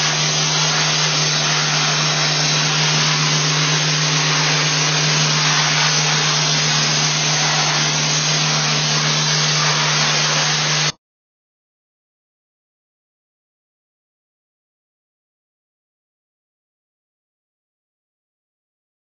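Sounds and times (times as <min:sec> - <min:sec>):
abrasive blaster spraying hiss: 0:00.0 - 0:10.9.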